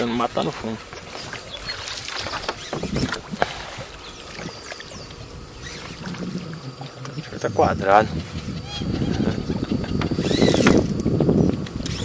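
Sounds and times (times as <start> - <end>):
water washing: 0.0 - 9.9.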